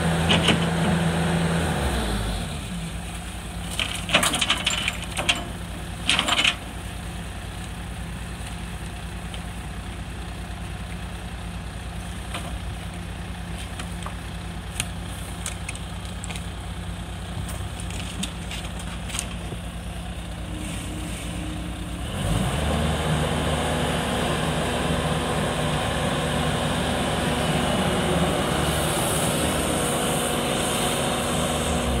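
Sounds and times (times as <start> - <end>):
diesel engine idling: 0.0 - 32.0
rake scraping debris: 3.0 - 6.9, 17.4 - 21.8.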